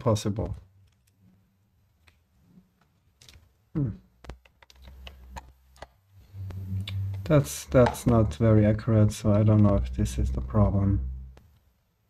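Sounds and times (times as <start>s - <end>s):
person murmuring: 3.8s - 4.1s.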